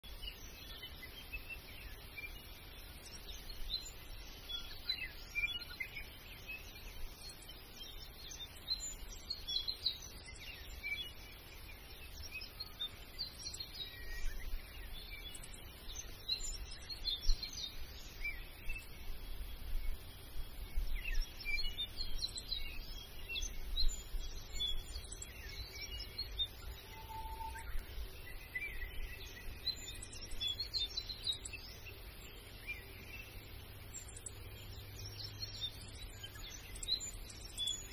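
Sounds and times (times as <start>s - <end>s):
small birds chirping: 0.0s - 37.9s
low bird whistle: 26.5s - 29.0s.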